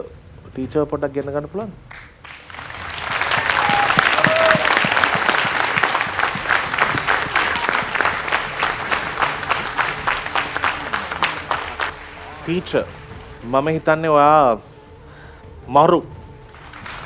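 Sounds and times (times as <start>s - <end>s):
audience applauding: 1.9s - 13.7s, 16.5s - 17.0s.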